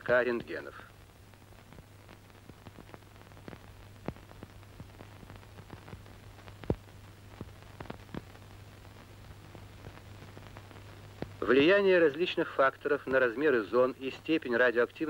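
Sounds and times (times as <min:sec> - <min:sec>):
film clicks and crackles: 0:00.4 - 0:11.4.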